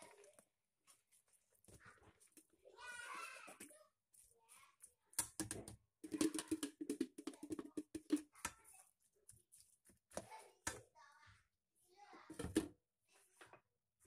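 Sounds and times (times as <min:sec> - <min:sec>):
metal spoon stirring in steel bowl: 0:03.5 - 0:10.4.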